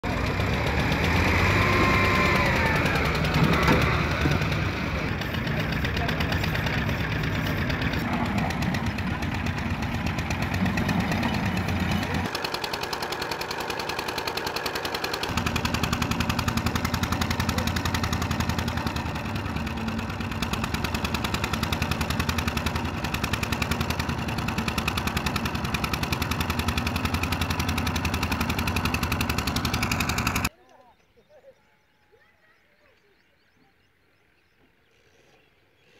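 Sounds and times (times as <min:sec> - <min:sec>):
diesel engine knocking: 0:00.0 - 0:30.5.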